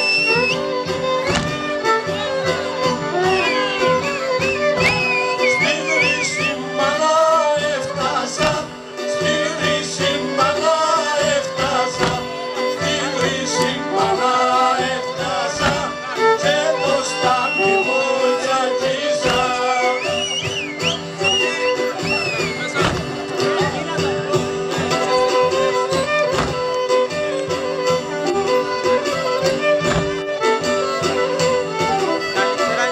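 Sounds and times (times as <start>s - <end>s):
violin melody: 0.0s - 32.9s
person singing: 4.8s - 20.7s.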